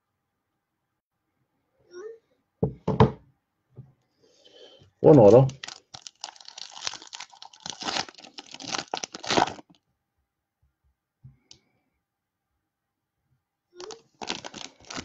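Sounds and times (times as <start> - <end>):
foil wrapper crinkling and tearing: 5.3 - 9.8, 13.8 - 15.0.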